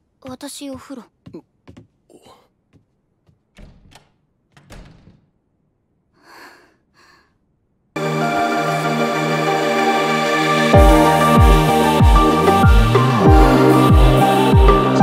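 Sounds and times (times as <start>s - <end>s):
quiet footsteps: 0.3s - 4.7s
door opening and closing: 3.5s - 5.4s.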